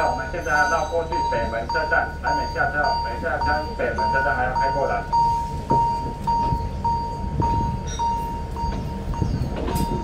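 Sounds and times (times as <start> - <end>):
level crossing warning bell: 0.0 - 10.0
train rumbling past: 0.0 - 10.0
train wheel knocks: 5.7 - 10.0.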